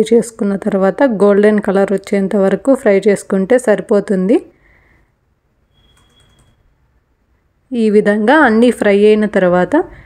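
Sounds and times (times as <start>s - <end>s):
soft clicks: 5.9s - 6.6s.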